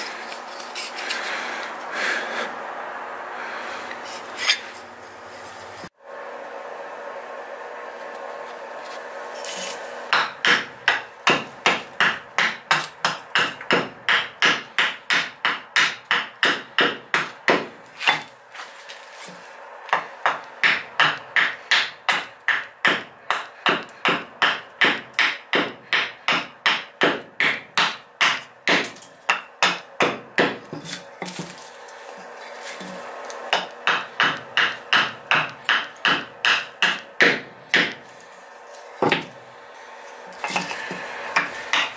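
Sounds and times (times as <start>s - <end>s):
hatchet chopping wood: 10.1s - 18.3s, 19.9s - 31.7s, 32.6s - 38.2s, 39.0s - 39.4s, 40.3s - 41.9s.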